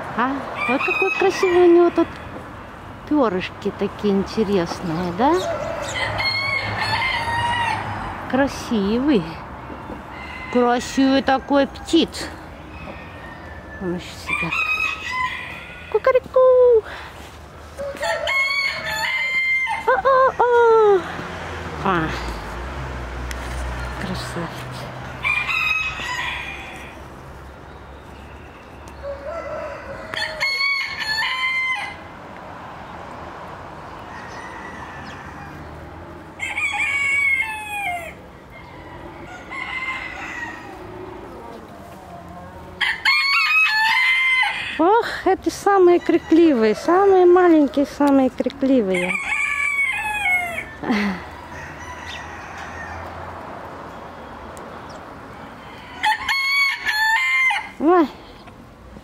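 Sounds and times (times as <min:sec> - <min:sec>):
rooster crowing: 0:05.4 - 0:08.2, 0:12.7 - 0:16.0, 0:17.8 - 0:20.0, 0:25.2 - 0:27.0, 0:29.0 - 0:32.1, 0:34.0 - 0:35.8, 0:36.4 - 0:41.4, 0:42.4 - 0:44.8, 0:48.9 - 0:53.3, 0:55.4 - 0:57.8.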